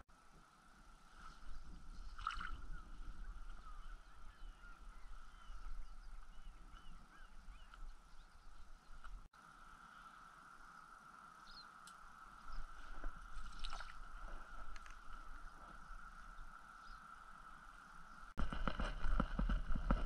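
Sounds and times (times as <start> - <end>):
distant birds chirping: 0.4 - 18.4
wind on microphone: 1.0 - 9.3, 12.4 - 20.0.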